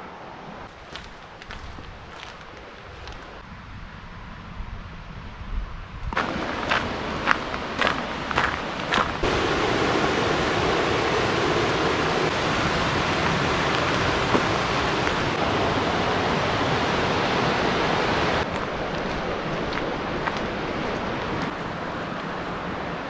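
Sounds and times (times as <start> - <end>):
footsteps on path: 0.7 - 3.4, 6.1 - 9.3, 12.4 - 15.4, 18.4 - 22.5
river rapids roaring: 6.2 - 23.0.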